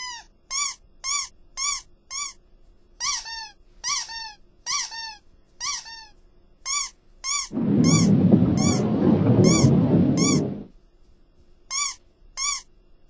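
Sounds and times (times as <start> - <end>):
high cartoon squeaks: 0.0 - 2.4, 3.0 - 6.1, 11.7 - 12.7.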